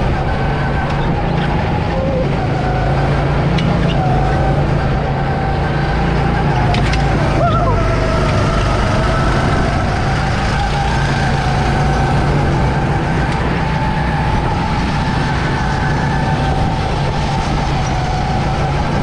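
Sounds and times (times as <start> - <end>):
go-kart engine running: 0.0 - 19.0
wind on microphone: 0.0 - 19.0.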